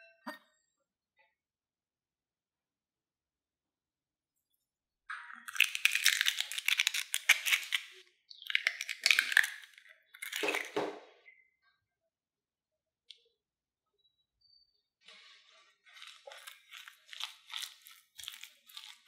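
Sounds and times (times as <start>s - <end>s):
eggshells cracking: 5.4s - 10.8s, 15.9s - 19.0s.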